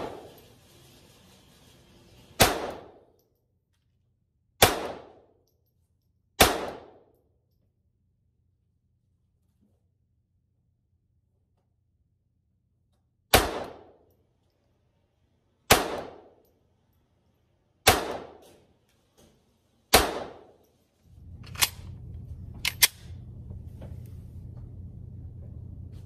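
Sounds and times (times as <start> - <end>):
pistol shots: 2.4 - 3.0, 4.6 - 5.2, 6.4 - 7.0, 13.3 - 14.0, 15.7 - 16.4, 17.8 - 18.4, 19.9 - 20.5.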